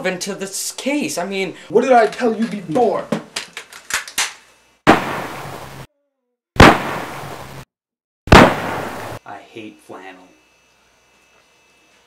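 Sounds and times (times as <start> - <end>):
gunshot bangs: 4.9 - 5.7, 6.6 - 7.6, 8.3 - 9.2.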